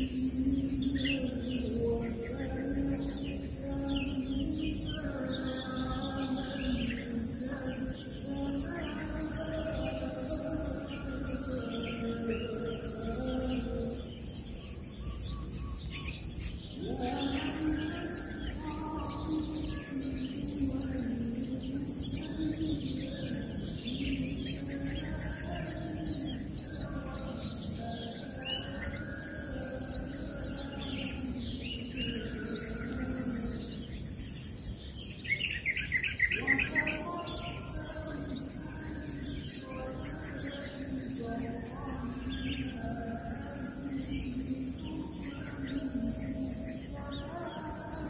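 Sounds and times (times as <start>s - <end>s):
birds chirping and calling: 0.0s - 48.0s
high drone of insects: 0.0s - 48.0s.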